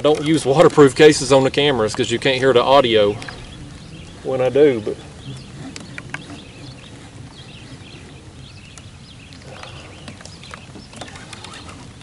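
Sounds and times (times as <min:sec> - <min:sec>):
raindrops tapping on camera: 0:00.0 - 0:06.4.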